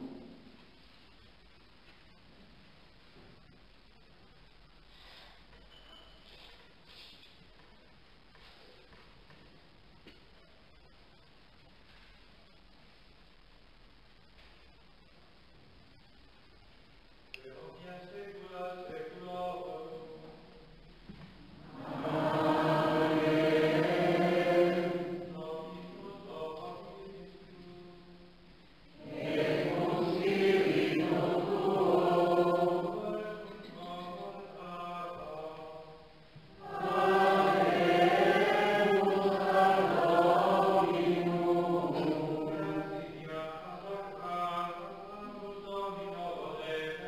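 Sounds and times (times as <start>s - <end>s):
choir singing plainchant: 21.6s - 27.3s, 29.0s - 35.7s, 36.5s - 47.0s.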